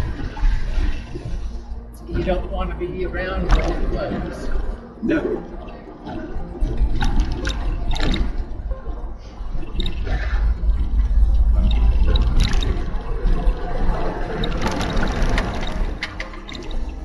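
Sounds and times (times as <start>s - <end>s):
low road rumble: 0.0s - 17.0s
tyres splashing through water: 3.4s - 4.9s, 11.4s - 17.0s.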